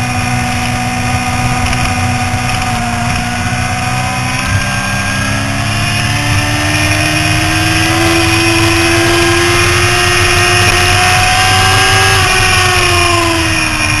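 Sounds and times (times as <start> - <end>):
motorcycle engine running hard: 0.0 - 14.0
wind rush on microphone: 0.0 - 14.0.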